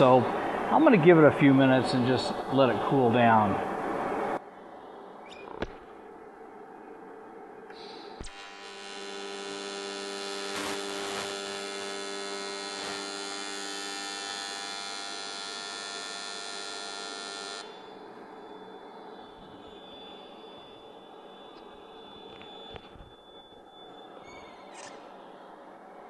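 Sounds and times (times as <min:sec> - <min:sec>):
welding arc buzzing: 0:08.2 - 0:18.0.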